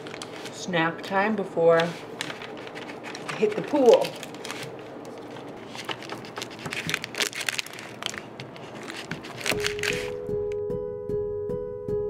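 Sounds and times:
knife slicing through wrapper: 5.6 - 10.2
music: 9.4 - 12.0.

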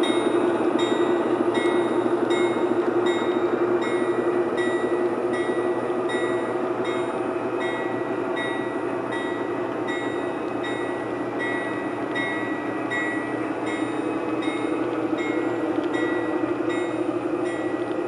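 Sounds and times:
model train wheels rumbling on rail: 0.0 - 18.0.

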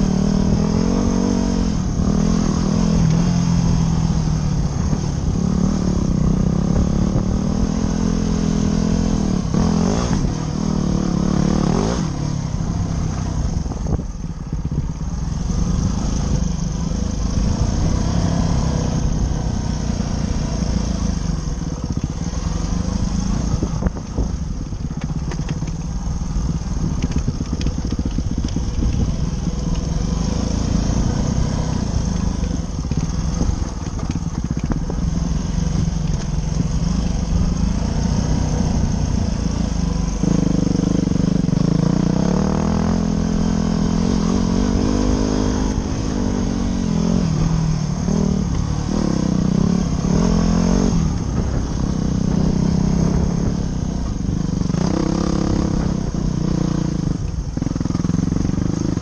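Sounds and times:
dirt bike engine: 0.0 - 59.0
wind on microphone: 11.8 - 42.2, 43.0 - 59.0.

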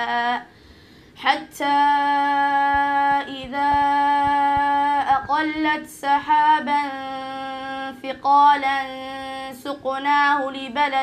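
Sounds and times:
boy chanting melodically: 0.0 - 0.5, 1.2 - 11.0.

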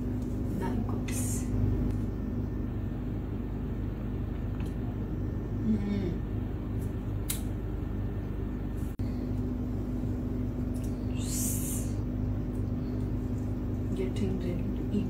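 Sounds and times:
low room hum: 0.0 - 15.0
low voice-like murmur: 5.6 - 6.4.

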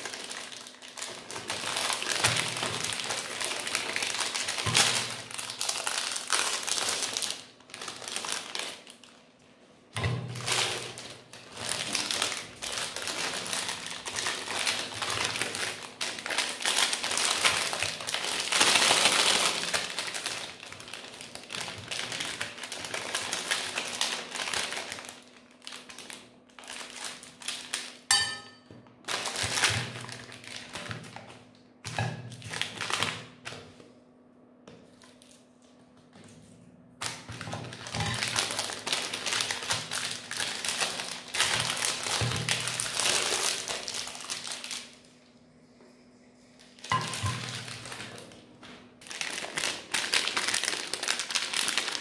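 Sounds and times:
meat grinder crunching: 0.0 - 9.2, 10.3 - 28.1, 29.0 - 31.4, 32.3 - 33.6, 37.0 - 45.0, 49.0 - 52.0.

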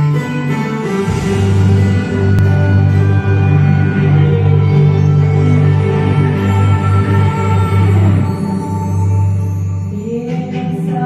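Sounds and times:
held chords: 0.0 - 11.0
deep steady bass note: 1.0 - 9.1.

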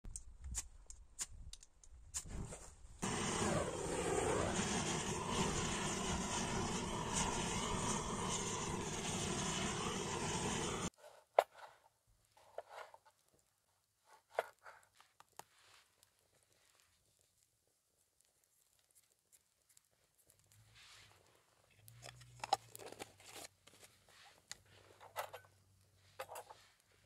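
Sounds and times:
gas torch jet hissing: 3.0 - 10.9.

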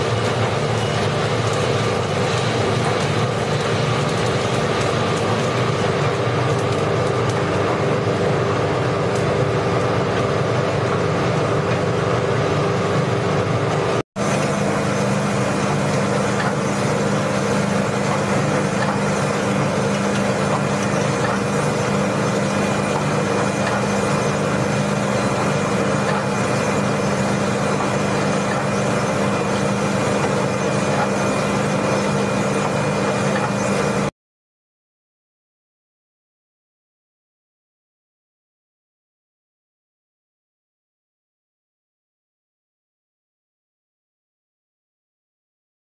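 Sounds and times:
coffee roaster motor humming: 0.0 - 34.1
beans churning: 14.2 - 34.1.

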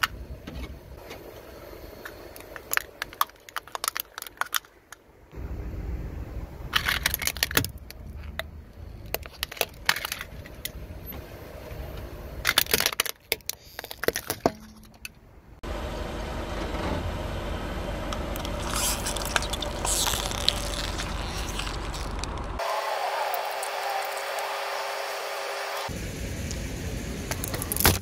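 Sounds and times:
crackling: 1.4 - 5.5, 18.1 - 22.6
objects cracking under a car tyre: 2.1 - 5.1, 6.7 - 10.8, 12.4 - 15.2, 18.1 - 22.6.

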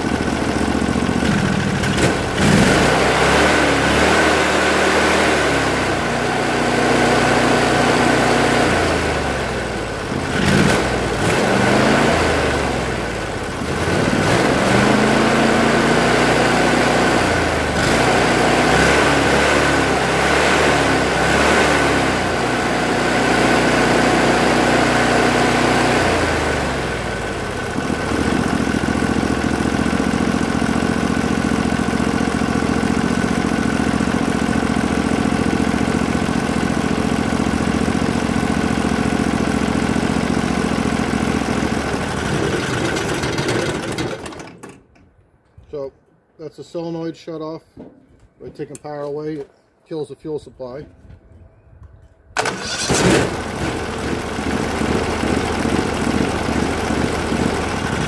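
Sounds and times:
engine running and revving: 0.0 - 44.3, 52.4 - 58.0.

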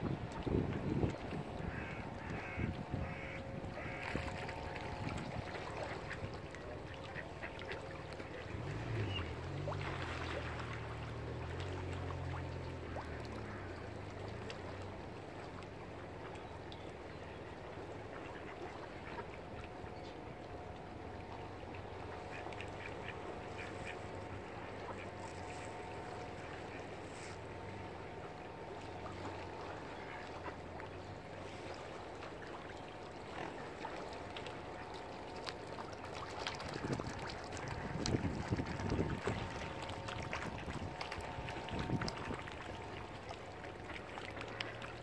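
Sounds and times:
low droning hum: 0.0 - 45.0
ducks quacking: 1.6 - 4.7, 22.2 - 27.4.

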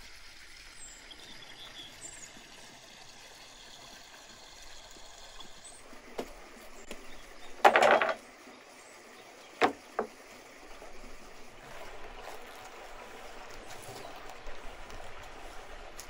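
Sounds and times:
running water: 0.0 - 16.0
knocks on wooden cutting board: 7.6 - 8.2, 9.6 - 10.1
crackling rustle of cabbage: 11.6 - 16.0.

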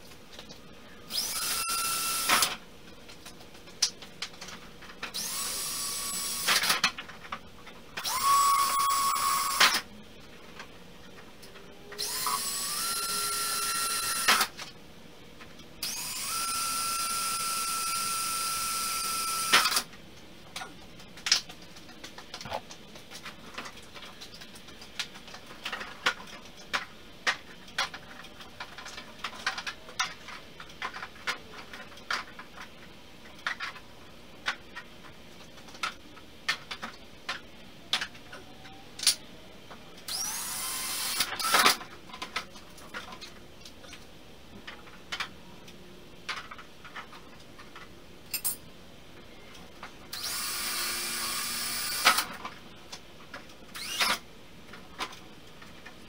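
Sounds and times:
cordless drill whining: 1.1 - 2.5, 5.2 - 6.5, 8.0 - 9.6, 12.0 - 14.4, 15.8 - 19.7, 40.1 - 41.6, 50.2 - 52.2, 53.8 - 54.2.

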